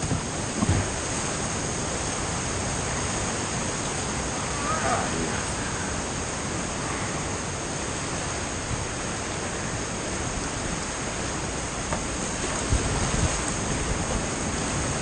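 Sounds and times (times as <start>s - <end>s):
paddle splashes: 0.0s - 15.0s
rushing whitewater: 0.0s - 15.0s.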